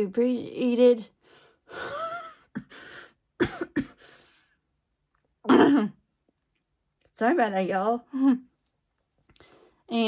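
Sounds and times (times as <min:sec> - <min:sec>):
person coughing: 0:03.4 - 0:04.1, 0:05.4 - 0:06.0.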